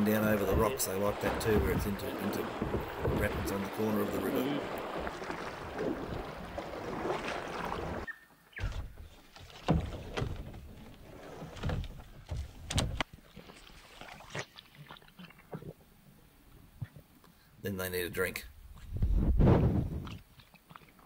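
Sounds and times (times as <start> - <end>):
paddle strokes splashing: 0.0 - 15.7
water splashing: 0.0 - 15.8
thumps on plastic kayak: 8.6 - 10.7.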